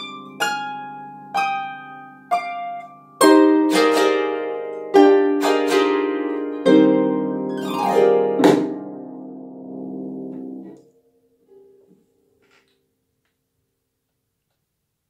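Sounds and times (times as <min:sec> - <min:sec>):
harp playing: 0:00.0 - 0:10.8.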